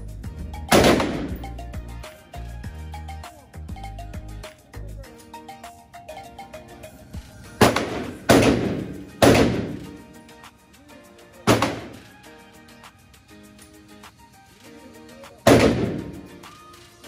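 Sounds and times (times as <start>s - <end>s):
quiet background music: 0.0s - 17.0s
gunshots echoing indoors: 0.7s - 1.4s, 7.6s - 10.0s, 11.5s - 12.0s, 15.5s - 16.4s.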